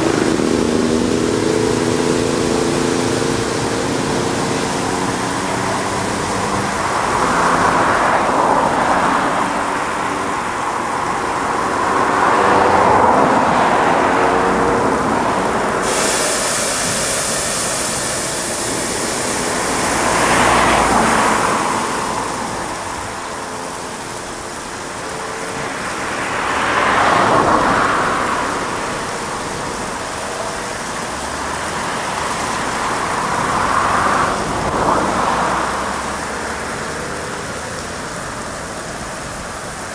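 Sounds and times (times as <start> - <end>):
car wash machine spraying: 0.0 - 39.9
high hiss: 0.0 - 39.9.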